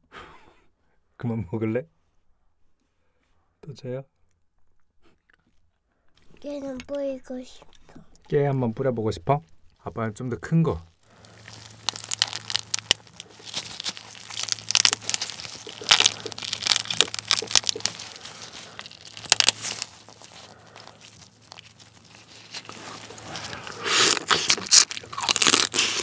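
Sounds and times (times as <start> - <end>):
crab shell crackling: 10.9 - 26.0
gloves crinkling: 11.0 - 26.0
wet squelching: 11.0 - 26.0
crunching bite: 11.1 - 26.0.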